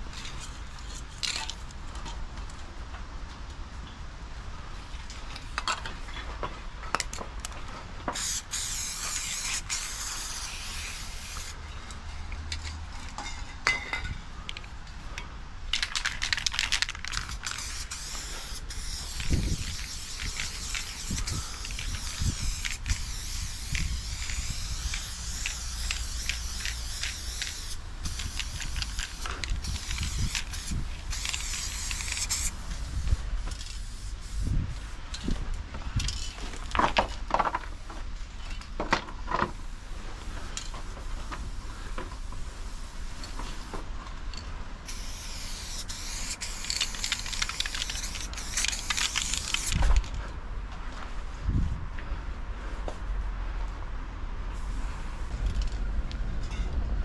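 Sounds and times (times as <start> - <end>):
spray paint can hissing: 8.1 - 11.6, 15.8 - 34.9, 44.8 - 49.9.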